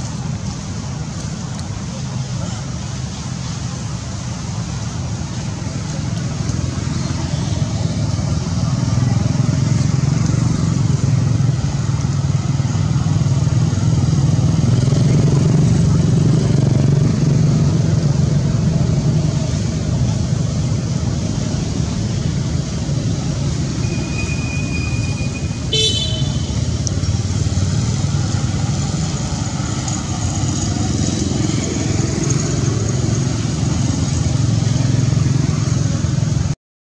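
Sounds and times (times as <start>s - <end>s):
traffic rumble: 0.0s - 36.6s
high-pitched horn toot: 23.8s - 26.6s.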